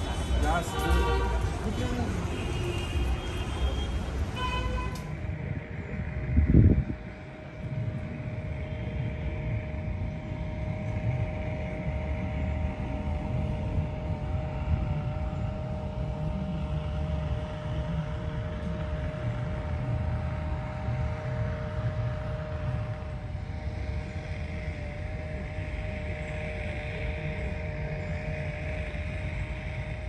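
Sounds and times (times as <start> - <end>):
constant droning hum: 0.0 - 30.0
street traffic rumble: 0.0 - 30.0.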